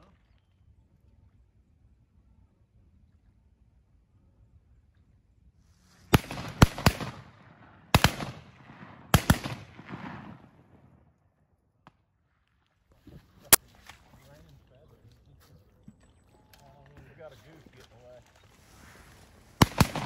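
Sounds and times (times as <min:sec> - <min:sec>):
shotgun shots echoing: 0:06.1 - 0:10.9, 0:19.6 - 0:20.0.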